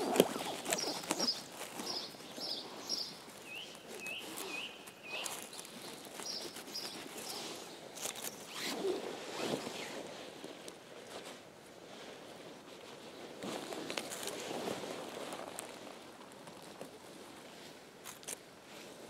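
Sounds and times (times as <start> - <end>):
dry pine needles rustling: 0.0 - 18.5
small bird chirping: 0.2 - 7.6.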